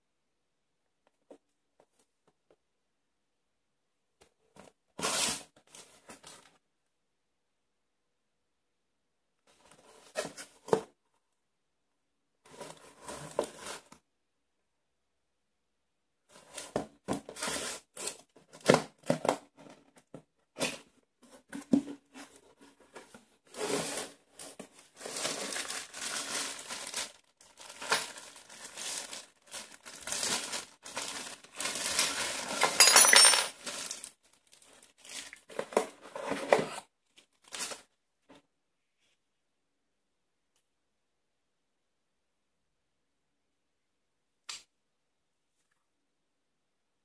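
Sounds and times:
plastic bags crinkling: 24.9 - 35.5.

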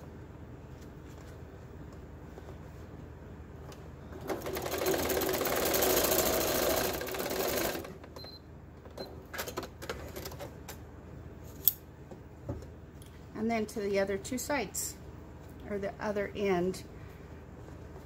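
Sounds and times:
sewing machine stitching: 4.2 - 8.0.

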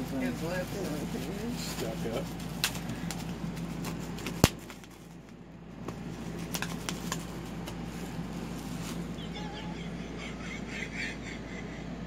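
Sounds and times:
bubble wrap popping: 0.6 - 9.2.

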